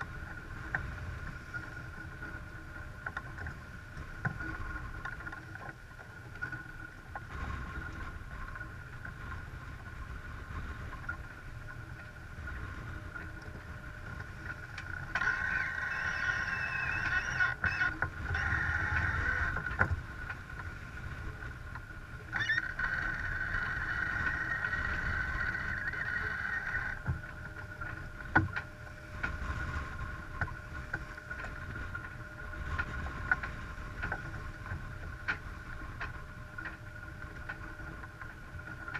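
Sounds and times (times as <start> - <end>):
water rushing along hull: 0.0 - 38.9
wind on microphone: 7.4 - 36.6.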